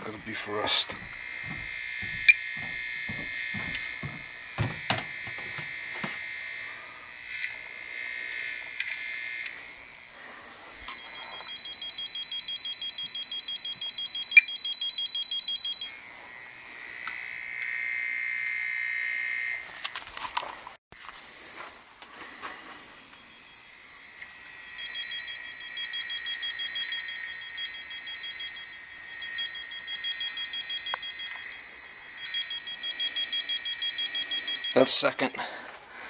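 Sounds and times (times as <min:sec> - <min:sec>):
high tone from tracer probe: 0:00.5 - 0:06.4, 0:10.8 - 0:16.0, 0:23.0 - 0:35.3
handling clicks and knocks: 0:00.9 - 0:06.2.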